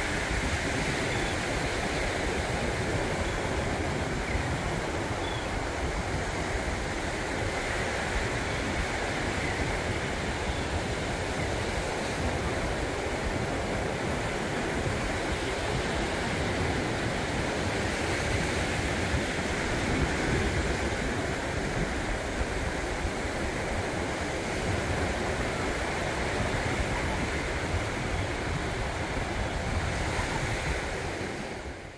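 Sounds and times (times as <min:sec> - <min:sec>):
ocean waves breaking on beach: 0:00.0 - 0:31.9
wind rumbling on microphone: 0:00.0 - 0:31.9.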